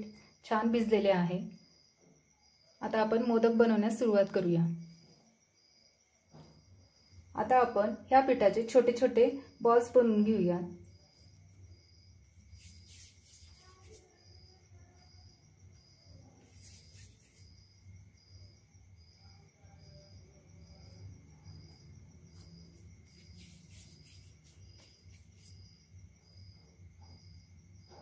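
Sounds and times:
cricket chirping: 0:00.0 - 0:28.0
soft rustles: 0:12.3 - 0:14.3, 0:16.4 - 0:17.8, 0:22.2 - 0:25.9.

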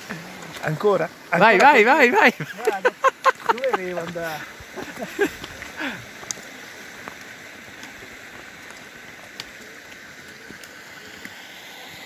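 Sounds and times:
mountain stream rushing: 0:00.0 - 0:12.0
footsteps on stony path: 0:03.4 - 0:08.8.

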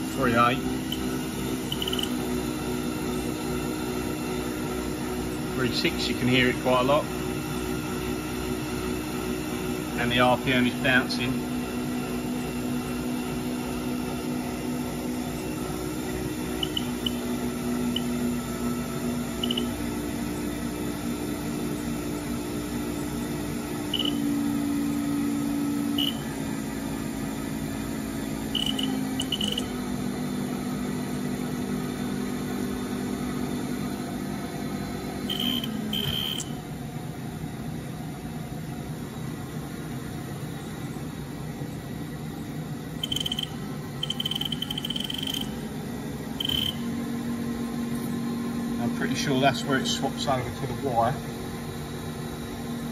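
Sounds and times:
spindle motor humming: 0:00.0 - 0:37.0, 0:41.6 - 0:52.9
keypad beeps: 0:01.7 - 0:02.2, 0:16.6 - 0:17.2, 0:19.4 - 0:19.7, 0:24.0 - 0:24.2, 0:28.6 - 0:29.7, 0:35.3 - 0:36.5, 0:43.0 - 0:45.6, 0:46.4 - 0:46.8.

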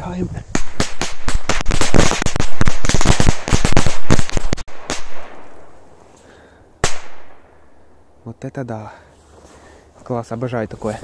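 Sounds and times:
firecrackers crackling bangs: 0:00.5 - 0:05.7, 0:06.8 - 0:07.4.

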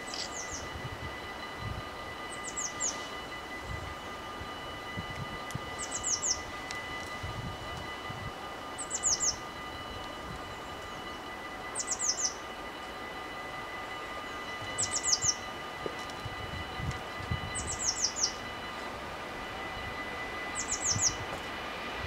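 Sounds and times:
level crossing warning bells: 0:00.0 - 0:22.0
songbird chirping: 0:11.8 - 0:12.5, 0:14.8 - 0:15.6.

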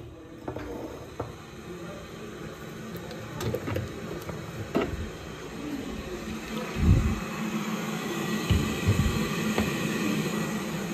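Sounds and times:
steady low hum: 0:04.8 - 0:10.9.

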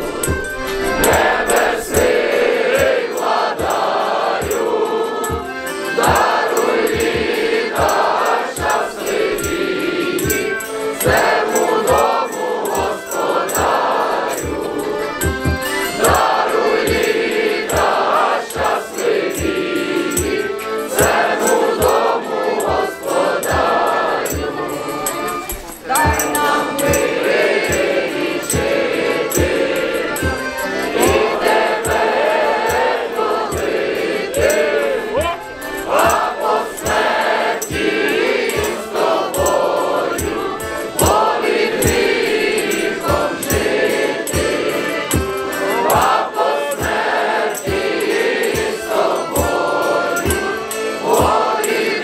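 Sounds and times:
steady drum beat: 0:00.0 - 0:04.7, 0:23.5 - 0:37.1
faint jingling: 0:00.0 - 0:46.5
large choir singing a carol: 0:00.0 - 0:52.0.

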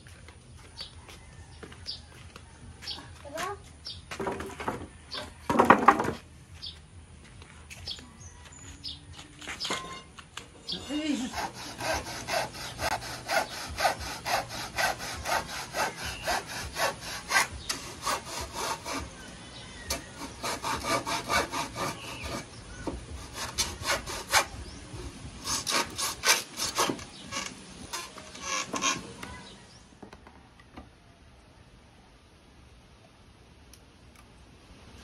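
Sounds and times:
handsaw cutting wood: 0:10.7 - 0:24.6, 0:25.4 - 0:29.2.

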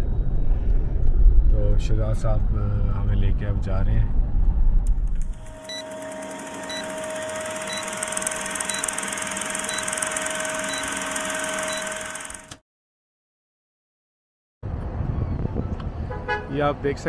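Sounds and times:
film projector whirring: 0:05.2 - 0:12.6.

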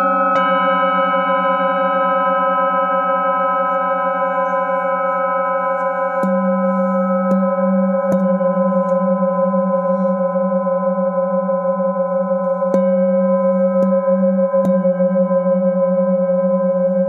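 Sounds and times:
singing bowl ringing hum: 0:00.0 - 0:17.0
wooden mallet tapping bowl: 0:06.2 - 0:09.7, 0:12.4 - 0:15.7.

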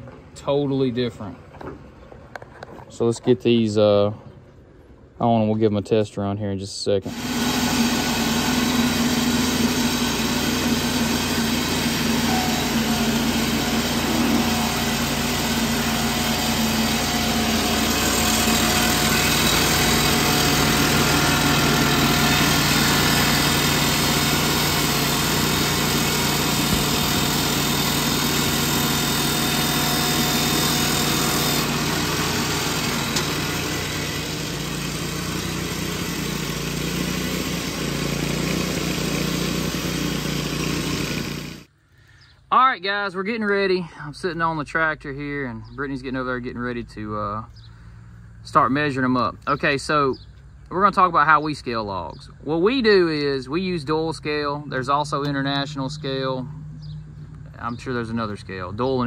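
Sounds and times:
edger saw machine drone: 0:07.0 - 0:41.7.

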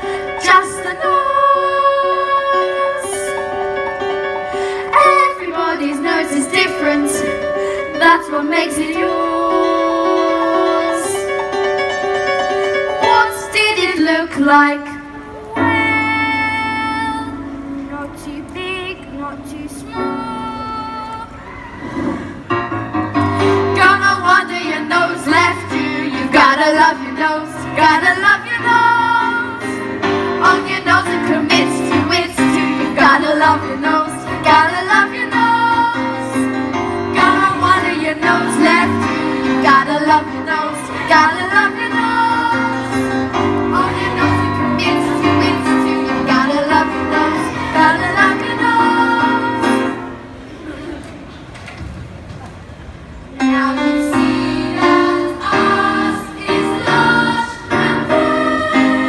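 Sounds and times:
youth choir singing: 0:00.4 - 0:03.5, 0:04.9 - 0:07.4, 0:08.0 - 0:11.3, 0:23.6 - 0:50.2, 0:53.4 - 0:59.0.

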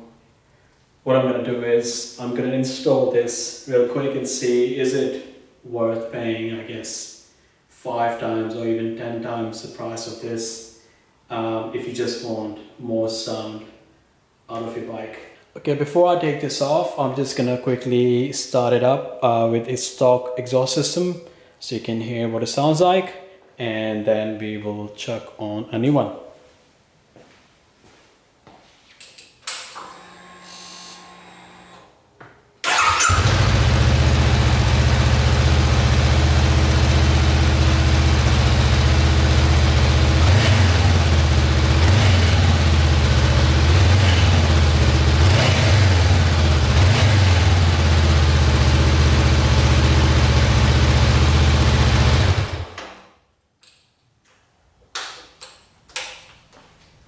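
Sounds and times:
motorcycle engine idling: 0:32.7 - 0:52.6.

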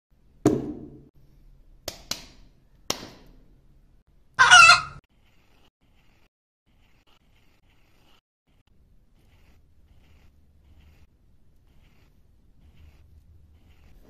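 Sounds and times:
chicken squawk: 0:04.4 - 0:05.0.

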